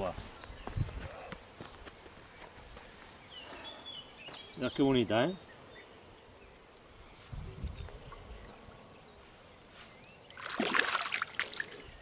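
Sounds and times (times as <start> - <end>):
fish thrashing and splashing: 10.3 - 11.8.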